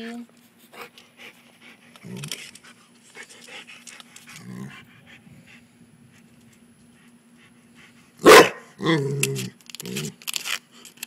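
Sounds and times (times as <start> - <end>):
dog panting: 0.7 - 8.2
dog barking loudly: 8.2 - 8.8.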